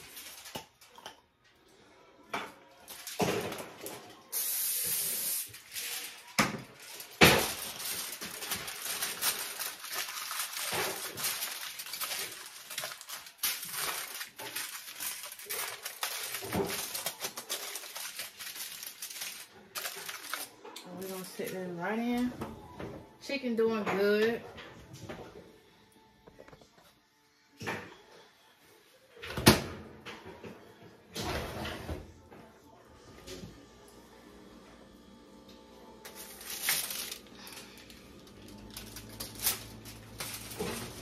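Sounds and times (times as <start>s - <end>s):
aluminium foil crackling: 0.0s - 1.1s, 2.7s - 22.3s, 36.0s - 41.0s.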